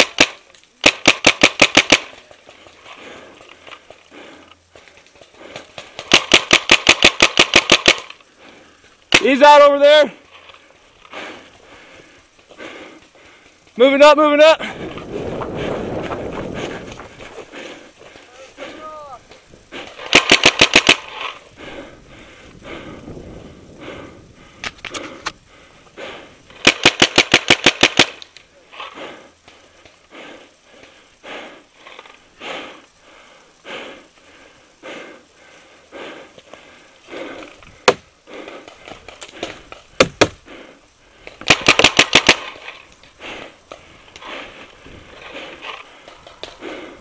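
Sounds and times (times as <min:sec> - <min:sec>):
paintball marker firing: 0:00.0 - 0:02.2, 0:06.0 - 0:08.2, 0:20.0 - 0:21.2, 0:26.6 - 0:28.3, 0:39.4 - 0:40.4, 0:41.4 - 0:42.7.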